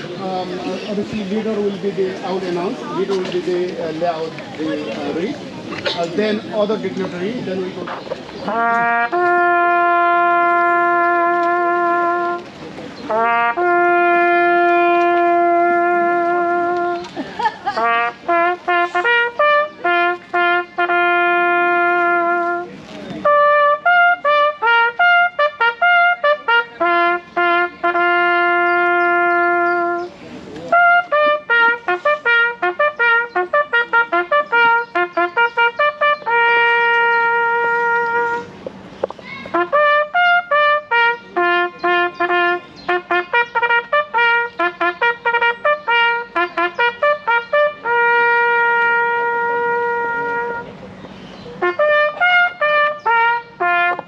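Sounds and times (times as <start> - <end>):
bugle call on brass horn: 8.4 - 17.1, 17.8 - 30.1, 30.7 - 38.6, 39.4 - 50.8, 51.6 - 54.0.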